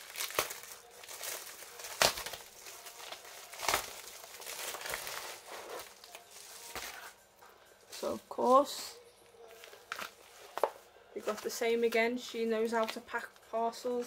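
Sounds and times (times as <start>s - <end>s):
packaging crinkling and rustling: 0.0s - 7.2s, 9.5s - 11.6s.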